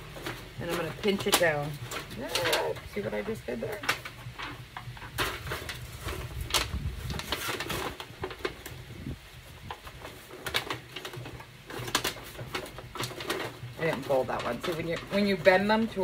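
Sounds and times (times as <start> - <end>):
aluminum sheet crinkling: 0.0 - 16.0
low steady rumble: 0.0 - 16.0.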